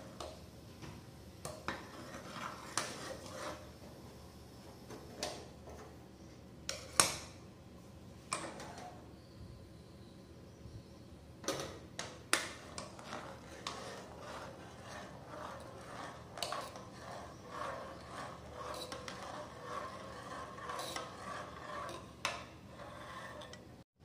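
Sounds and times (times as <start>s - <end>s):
metal spoon scraping saucepan: 1.7s - 3.7s, 12.6s - 23.8s.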